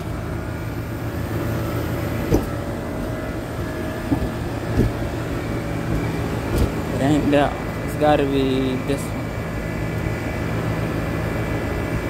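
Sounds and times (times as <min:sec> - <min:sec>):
air conditioning units droning: 0:00.0 - 0:12.0
faint steady whine: 0:00.0 - 0:12.0
short knocks: 0:02.2 - 0:05.2, 0:05.8 - 0:06.9.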